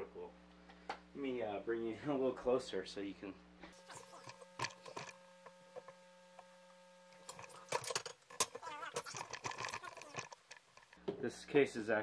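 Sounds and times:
faint electrical hum: 0.0s - 12.0s
handling knocks clicks and scraping: 7.2s - 11.0s.

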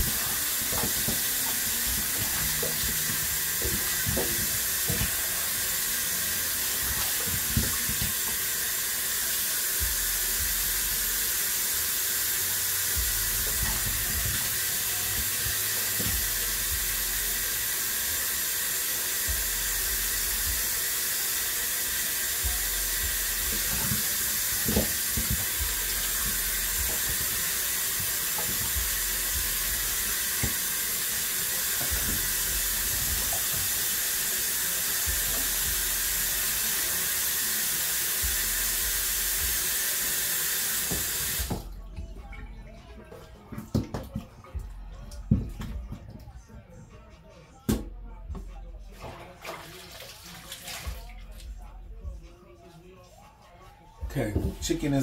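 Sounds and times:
tap running into steel sink: 0.0s - 5.8s, 6.6s - 8.5s, 13.0s - 16.8s, 23.2s - 34.0s, 40.7s - 41.7s.

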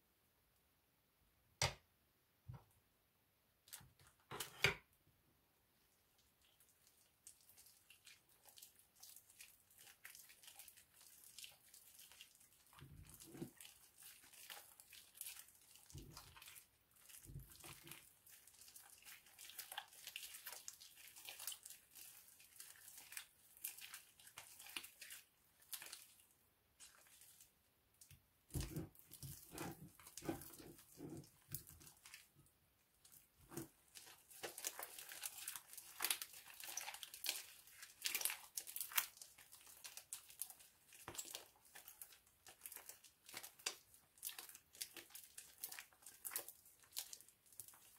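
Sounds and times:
slime crackling and popping: 7.9s - 27.3s, 33.0s - 47.9s.

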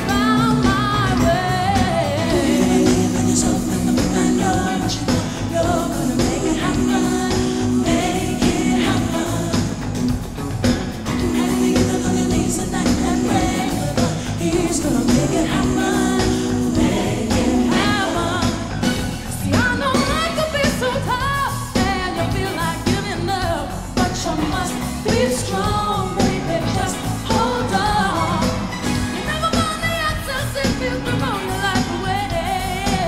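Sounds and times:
backing vocals: 0.0s - 10.2s, 11.0s - 28.8s
woman singing lead vocals: 0.0s - 10.2s, 11.1s - 33.0s
band chords: 0.0s - 21.2s.

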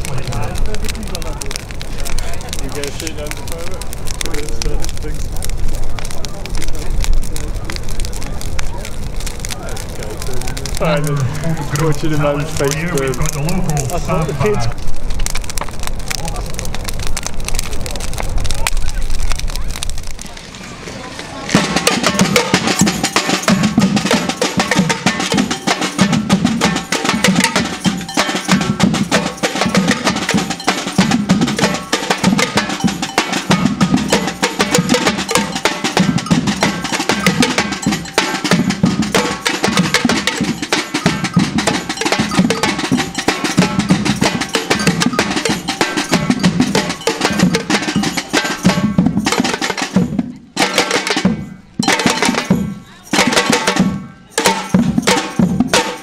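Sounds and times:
deep bass drums: 21.5s - 50.5s
higher drums played with sticks: 21.5s - 56.0s.

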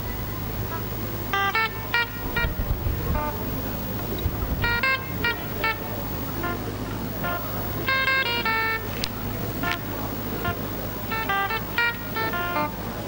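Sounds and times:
steady low hum: 0.0s - 13.0s
staccato keyboard music: 4.2s - 12.8s.

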